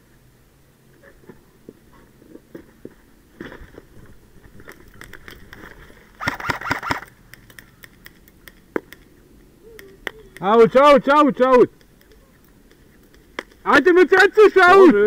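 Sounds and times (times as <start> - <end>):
single ticks and scuffs: 4.8 - 10.5
airsoft rifle full-auto burst: 6.2 - 7.1.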